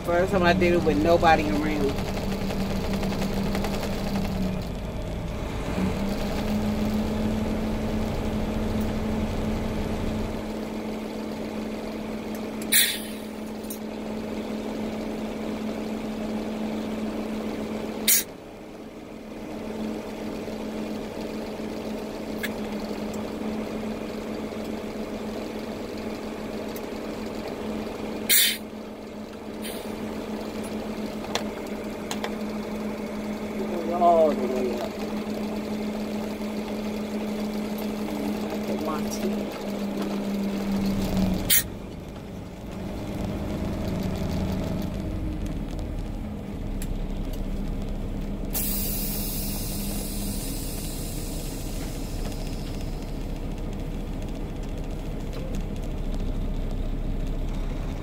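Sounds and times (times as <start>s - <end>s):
diesel engine drone: 0.0s - 58.0s
air hiss bursts: 12.7s - 13.2s, 28.3s - 28.6s.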